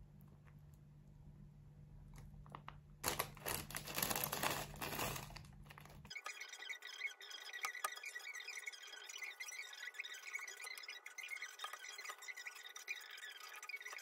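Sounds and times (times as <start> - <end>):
plastic bag crinkling: 2.6 - 6.1.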